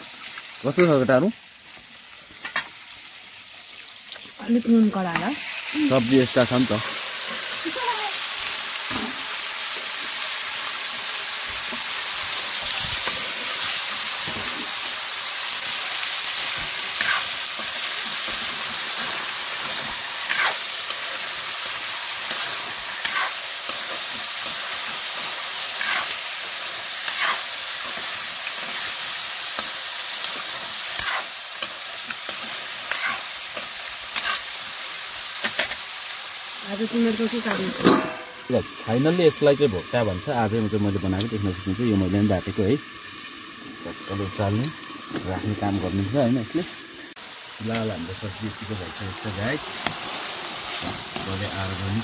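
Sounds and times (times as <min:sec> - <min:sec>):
food sizzling in a wok: 0:00.0 - 0:52.0
spatula scraping a pan: 0:16.9 - 0:26.2, 0:26.8 - 0:28.9, 0:29.6 - 0:34.5.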